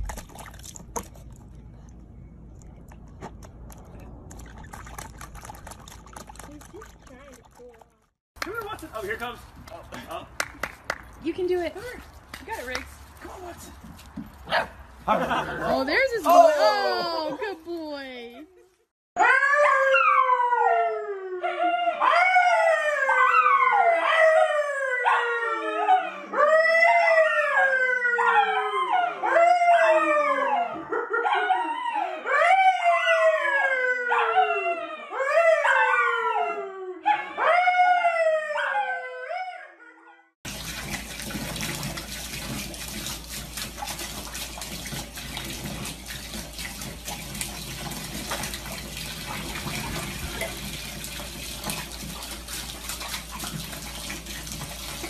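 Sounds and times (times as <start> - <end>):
dog howling: 19.2 - 40.0.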